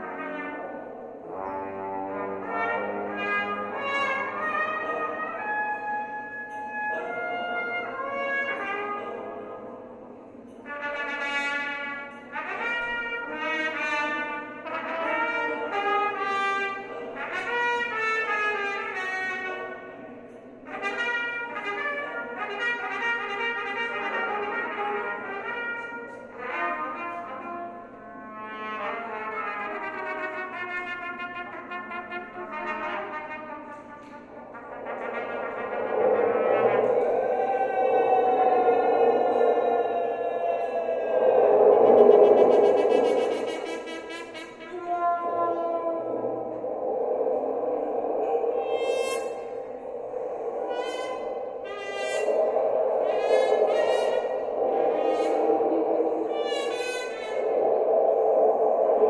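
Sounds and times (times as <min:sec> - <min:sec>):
rough sustained sound: 0:33.7 - 0:59.0.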